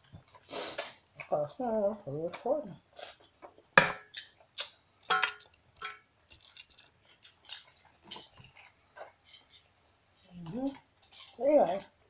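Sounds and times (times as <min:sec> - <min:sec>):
eating clicks and smacks: 0:03.4 - 0:05.6, 0:06.3 - 0:08.8.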